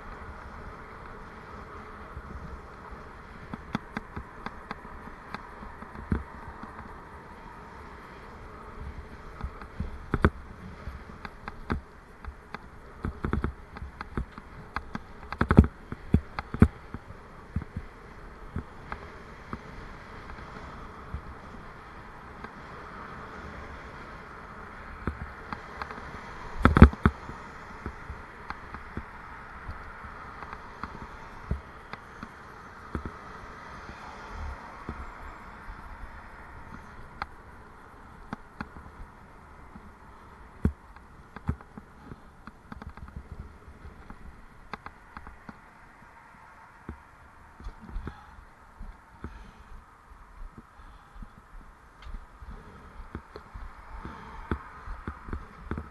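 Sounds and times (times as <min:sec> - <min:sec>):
bicycle knocks and rattles: 0:00.0 - 0:34.1, 0:35.7 - 0:45.6
bicycle ride buzzing hum: 0:00.0 - 0:55.9.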